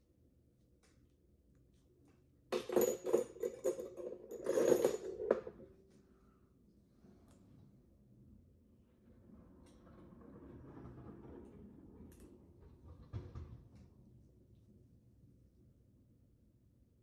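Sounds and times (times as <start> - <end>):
small metal instruments clattering: 2.6 - 5.6.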